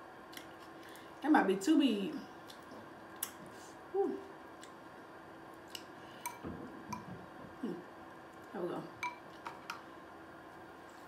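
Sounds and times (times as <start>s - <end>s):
person humming: 7.6s - 7.9s.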